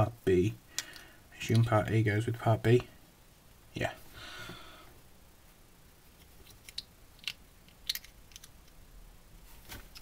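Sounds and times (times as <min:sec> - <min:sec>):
plastic pieces clicking together: 0:06.4 - 0:08.8.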